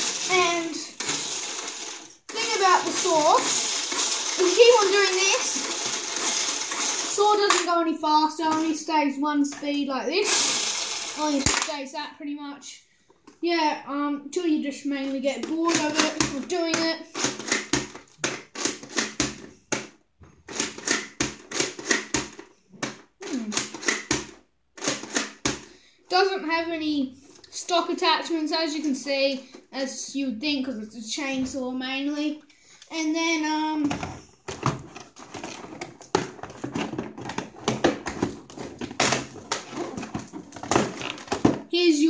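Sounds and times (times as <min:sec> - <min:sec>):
plastic ratcheting clatter: 0:00.0 - 0:07.6, 0:15.4 - 0:19.2, 0:34.5 - 0:41.6
clicks and knocks in toy box: 0:11.3 - 0:11.8, 0:15.4 - 0:25.6, 0:33.9 - 0:41.7
cardboard packaging rustling: 0:34.5 - 0:41.7.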